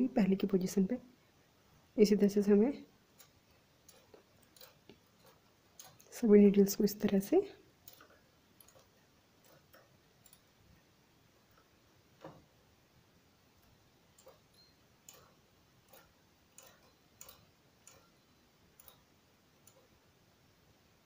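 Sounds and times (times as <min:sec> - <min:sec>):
faint clicks of metal needles: 0:03.1 - 0:10.8, 0:13.6 - 0:20.0.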